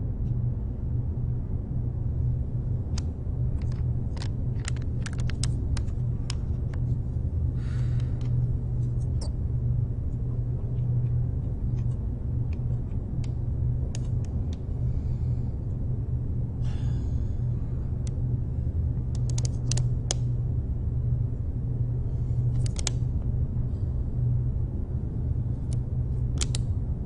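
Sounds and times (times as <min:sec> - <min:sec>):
low room hum and rumble: 0:00.0 - 0:27.0
light clicks: 0:19.1 - 0:20.3, 0:26.4 - 0:26.7.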